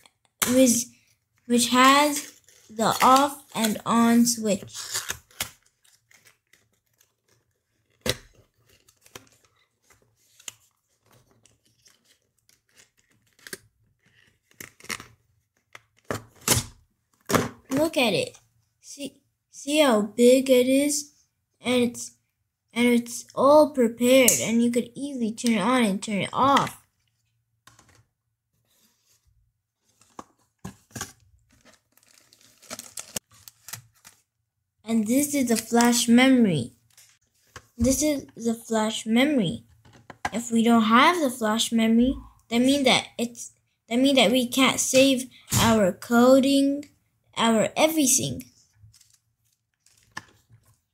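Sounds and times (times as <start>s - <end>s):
cardboard packaging scraping and rustling: 29.9s - 34.2s.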